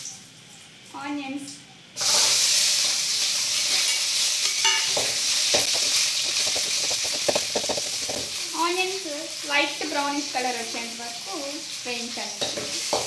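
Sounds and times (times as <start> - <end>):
steel ladle scraping a pan: 2.0 - 8.4
onions sizzling in hot oil: 2.0 - 13.0.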